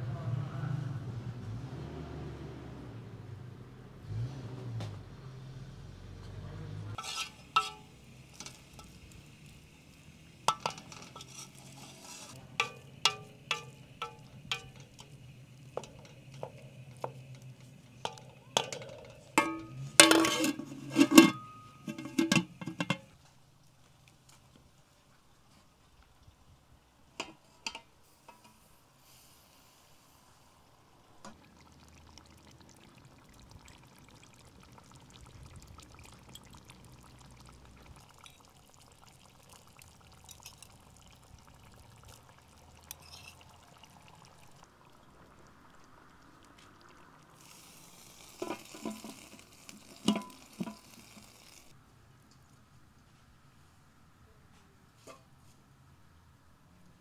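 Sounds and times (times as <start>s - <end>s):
pouring into pot: 6.9s - 23.2s, 30.9s - 51.8s
food sizzling in pot: 6.9s - 23.3s, 27.2s - 51.8s
pot and lid clinking: 7.0s - 23.2s, 27.2s - 28.6s, 48.3s - 51.4s.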